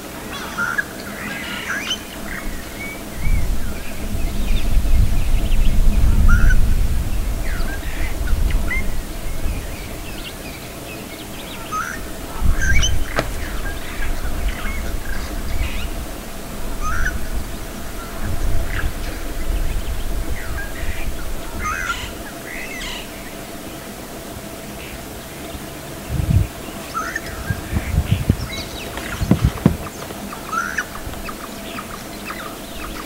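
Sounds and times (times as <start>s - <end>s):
low uneven rumble: 2.1s - 22.4s, 25.1s - 32.9s
birds chirping and calling: 7.4s - 16.2s, 16.8s - 23.8s, 24.8s - 33.0s.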